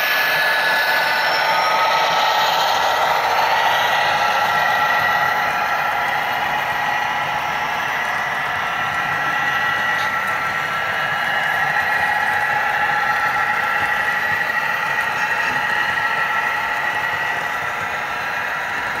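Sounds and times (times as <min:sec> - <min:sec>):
model train whirring: 0:00.0 - 0:19.0.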